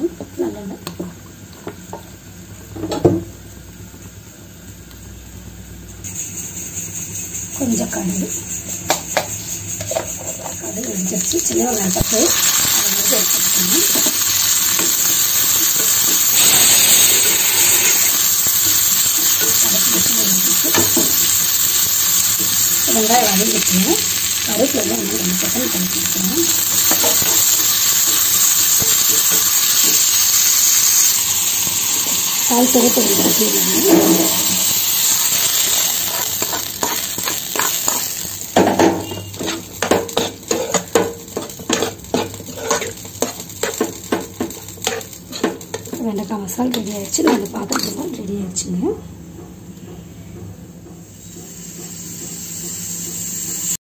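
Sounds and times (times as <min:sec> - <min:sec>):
onions sizzling in oil: 0:00.0 - 0:48.8, 0:51.1 - 0:53.8
spatula scraping a pan: 0:32.7 - 0:46.0.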